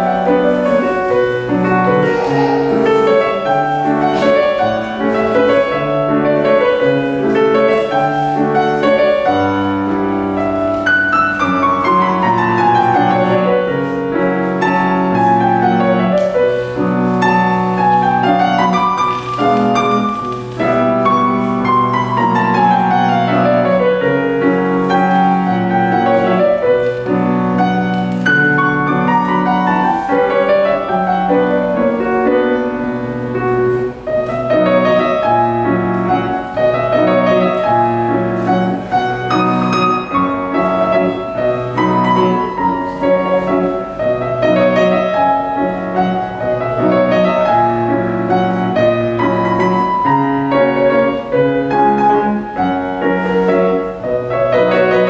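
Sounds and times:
solo grand piano: 0:00.0 - 0:55.0.

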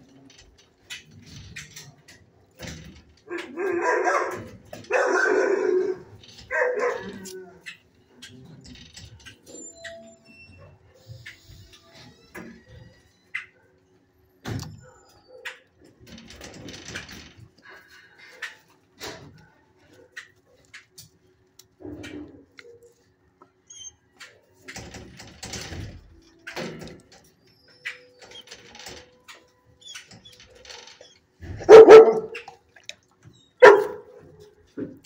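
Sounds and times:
dog barking: 0:03.4 - 0:07.4, 0:31.5 - 0:32.4, 0:33.6 - 0:34.2.

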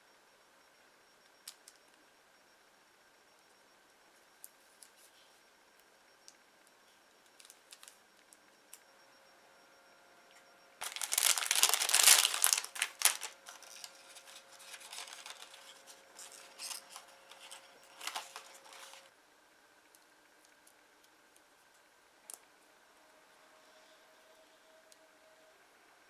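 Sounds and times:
plastic pieces clicking: 0:10.8 - 0:13.8
plastic packaging crinkling: 0:10.8 - 0:19.1.

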